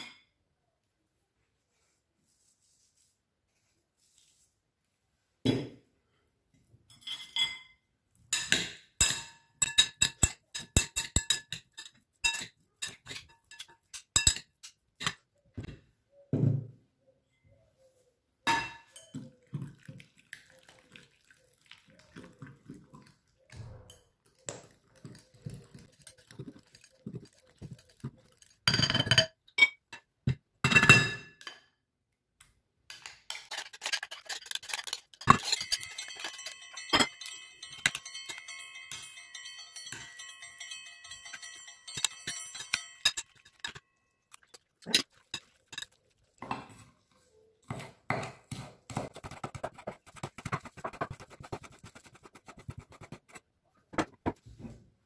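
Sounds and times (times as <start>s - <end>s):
spoon clinking against glass bowl: 8.4s - 15.2s, 18.5s - 19.5s, 33.0s - 46.1s
spoon scraping bowl: 9.6s - 15.2s, 24.7s - 28.7s, 32.9s - 47.0s, 49.1s - 53.4s.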